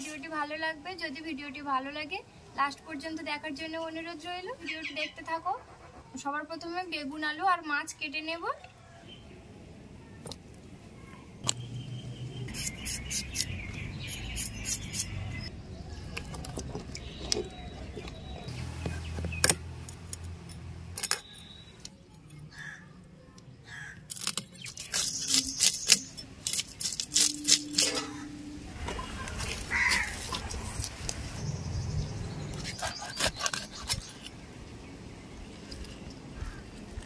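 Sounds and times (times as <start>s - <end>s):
fish scales scraping against blade: 12.5s - 15.4s, 24.1s - 28.3s, 32.5s - 34.3s.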